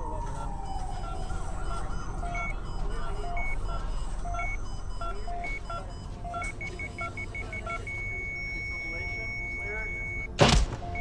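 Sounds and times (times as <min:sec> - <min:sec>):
falling siren tone: 0:00.0 - 0:06.5
short electronic beeps: 0:01.1 - 0:11.0.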